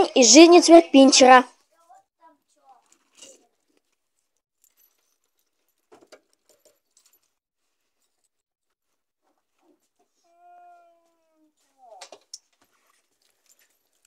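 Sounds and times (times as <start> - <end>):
dog collar chain jingling: 1.6 - 8.4, 11.6 - 14.0.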